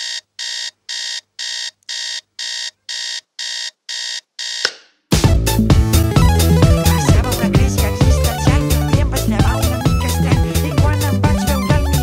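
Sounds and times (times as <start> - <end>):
alarm clock beeping: 0.0 - 4.7
loud music: 5.1 - 12.0.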